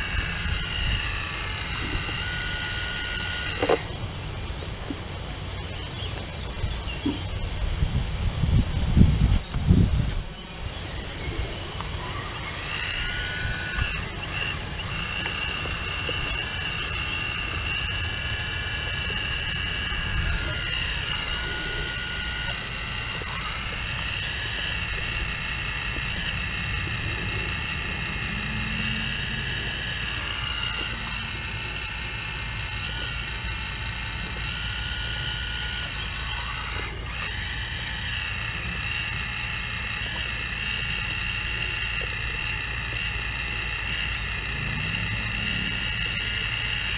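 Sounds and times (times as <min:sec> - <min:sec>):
excavator hydraulic whine: 0:00.0 - 0:04.1, 0:11.2 - 0:46.9.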